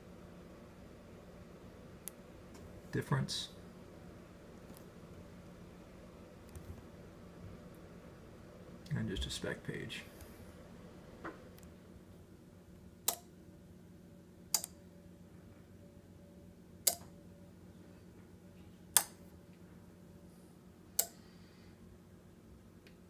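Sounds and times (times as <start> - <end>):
steady low electrical hum: 0.0 - 23.0
sharp switch clicks: 13.0 - 13.3, 14.5 - 14.8, 16.8 - 17.1, 18.9 - 19.2, 21.0 - 21.2.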